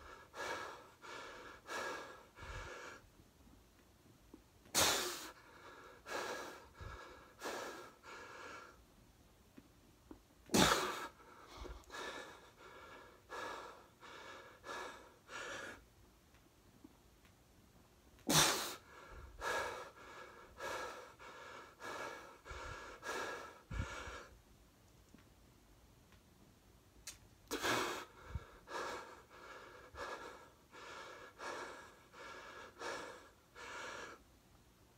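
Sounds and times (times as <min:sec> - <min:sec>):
man breathing hard: 0:00.0 - 0:03.2, 0:04.7 - 0:08.9, 0:10.5 - 0:15.9, 0:18.3 - 0:24.4, 0:27.5 - 0:34.3.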